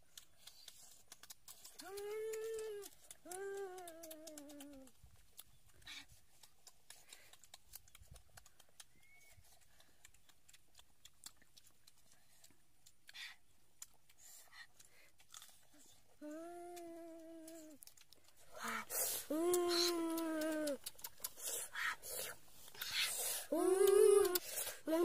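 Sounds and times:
people chewing food: 0.0 - 25.0
person humming mmm: 1.5 - 5.0, 16.1 - 25.0.

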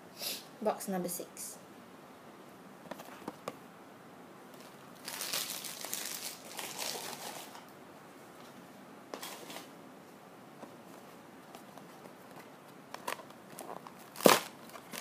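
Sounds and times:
packaging rustling and crinkling: 4.5 - 7.7, 10.8 - 15.0.

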